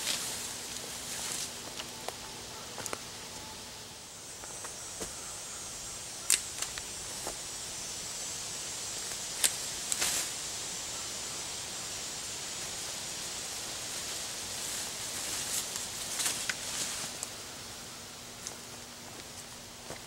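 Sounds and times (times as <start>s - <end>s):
steady hiss: 0.0s - 20.0s
sharp snaps and clicks: 6.3s - 6.9s.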